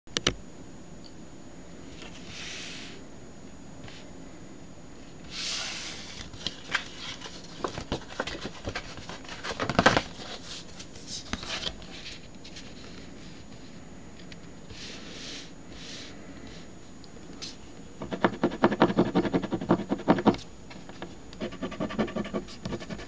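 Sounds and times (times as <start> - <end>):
card sliding hiss: 1.9 - 3.1, 5.2 - 7.6, 14.6 - 16.7
card crackling and tapping: 6.2 - 11.8.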